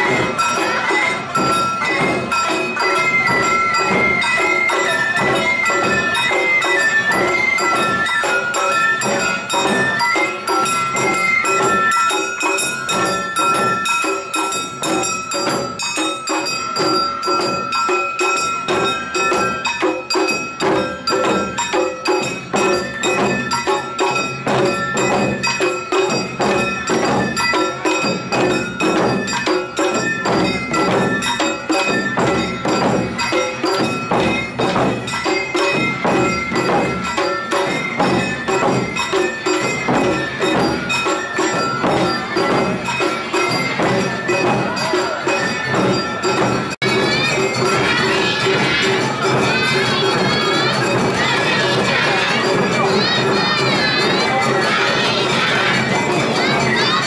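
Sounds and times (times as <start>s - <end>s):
shamisen: 0.0s - 57.0s
taiko drums: 0.0s - 57.0s
bamboo flute: 2.8s - 10.4s.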